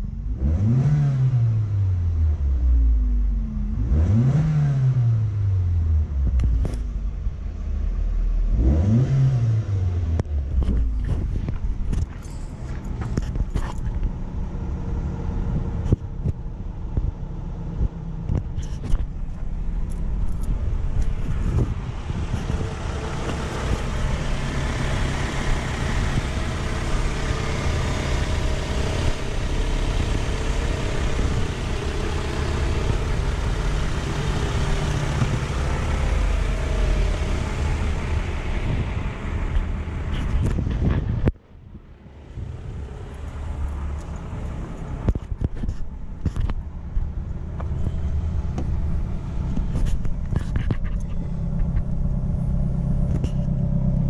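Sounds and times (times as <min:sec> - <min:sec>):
car engine idling: 0:05.3 - 0:08.8, 0:09.7 - 0:54.0
sharp clicks and knocks: 0:10.1 - 0:14.2, 0:49.5 - 0:52.1.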